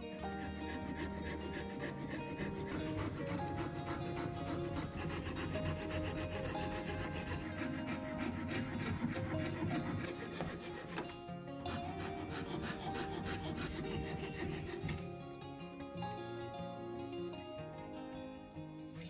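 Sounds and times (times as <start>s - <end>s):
fret saw rasping through wood: 0.0s - 15.1s
soft background music: 0.0s - 19.0s.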